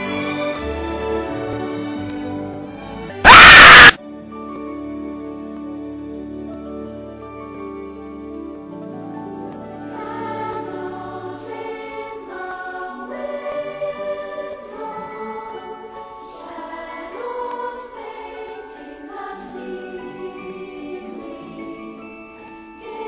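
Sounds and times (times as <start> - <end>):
choir singing held notes: 3.2 - 4.0, 9.9 - 23.0.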